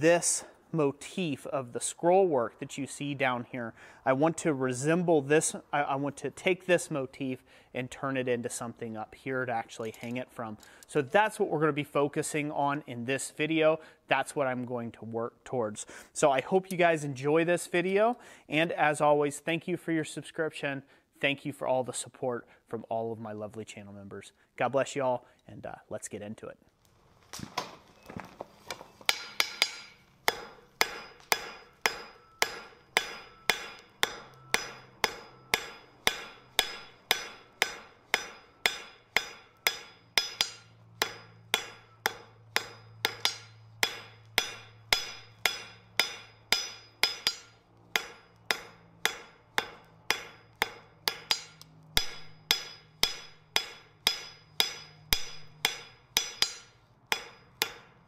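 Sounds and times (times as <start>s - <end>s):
hammer ringing on anvil: 29.1s - 58.0s.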